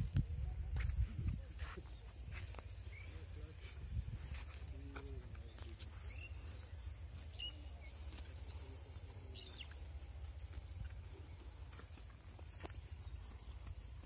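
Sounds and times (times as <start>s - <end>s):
faint low rumble: 2.3s - 14.0s
bird chirps: 5.3s - 11.3s.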